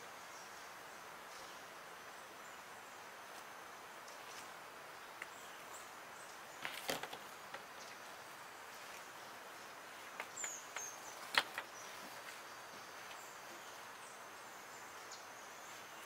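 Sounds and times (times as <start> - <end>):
faint outdoor hiss: 0.0 - 16.0
paper and tools rustling: 6.6 - 7.6.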